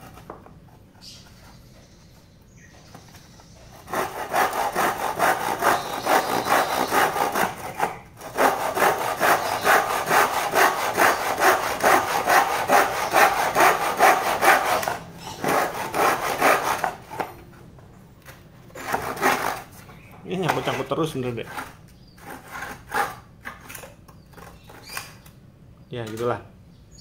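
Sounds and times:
hand saw cutting wood: 3.7s - 17.3s, 18.7s - 19.8s, 20.5s - 23.7s.

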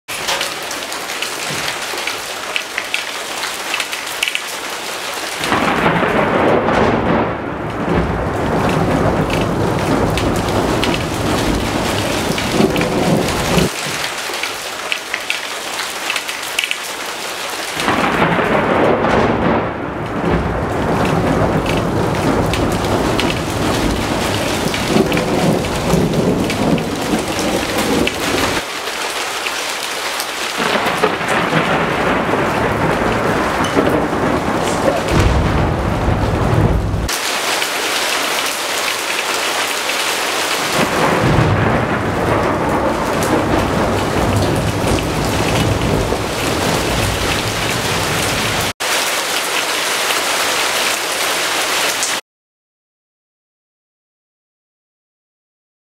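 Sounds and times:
rolling thunder: 5.4s - 13.7s, 17.8s - 28.6s, 30.6s - 37.1s, 40.7s - 48.7s
steady rain hissing: 8.6s - 19.0s, 20.9s - 52.2s.

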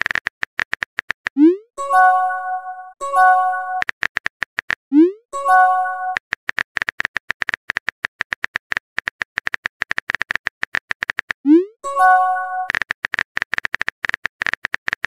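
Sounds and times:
bright multi-note chime: 1.8s - 3.8s, 5.4s - 6.2s, 11.8s - 12.7s.

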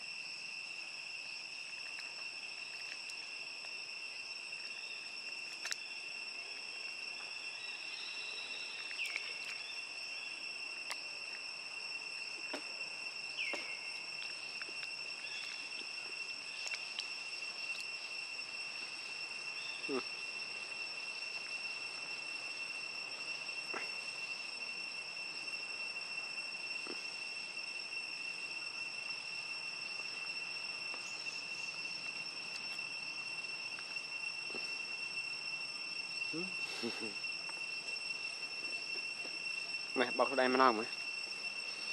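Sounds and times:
high-pitched insect drone: 0.0s - 41.9s.

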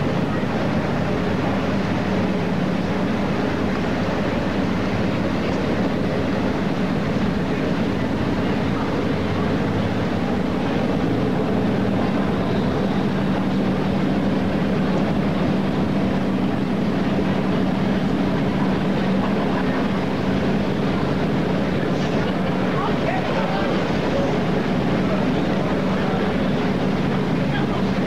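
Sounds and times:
ship machinery hum: 0.0s - 28.0s
steady rushing noise: 0.0s - 28.0s.

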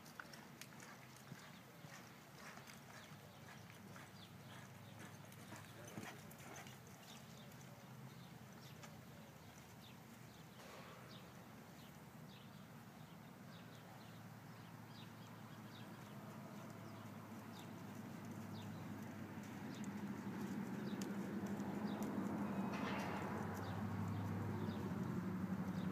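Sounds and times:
hoofbeats on soft dirt: 0.0s - 11.9s, 15.0s - 25.9s.

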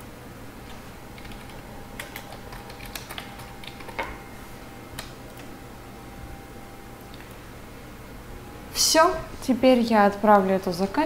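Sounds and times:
computer keyboard and mouse clicks: 1.2s - 4.2s.

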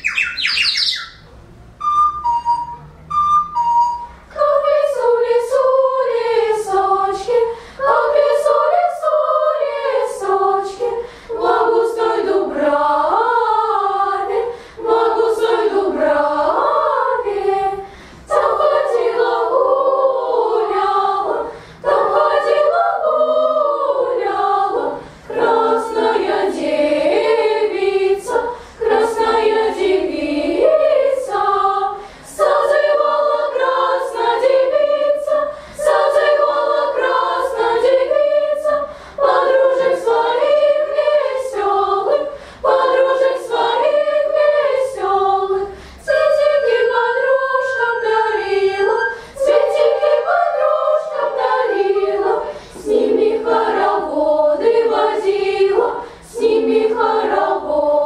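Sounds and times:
children's choir singing: 0.0s - 1.0s, 1.7s - 58.0s.

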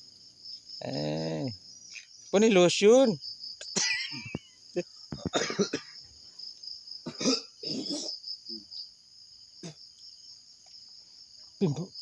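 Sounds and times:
crickets chirring: 0.0s - 12.0s
person coughing or exclaiming: 5.3s - 5.9s, 7.1s - 8.1s.

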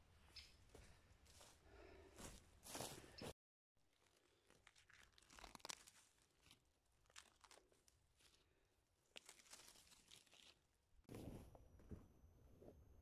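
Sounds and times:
decayed wood crackling and crunching: 3.8s - 10.8s
bark tearing from rotten log: 4.6s - 8.4s, 9.1s - 10.7s.

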